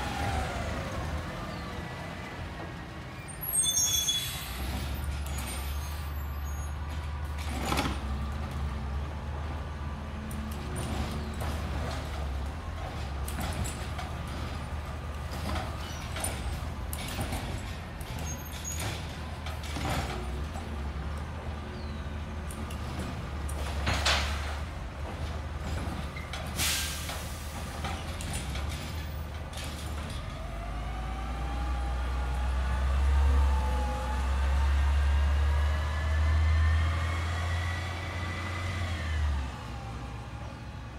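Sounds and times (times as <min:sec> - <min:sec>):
diesel truck engine revving: 0:30.3 - 0:40.4.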